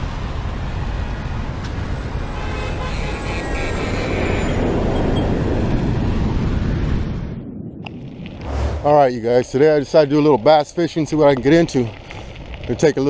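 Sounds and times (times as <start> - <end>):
rush of traffic-like noise: 0.0 - 13.0
faint horn-like tones: 2.3 - 5.4.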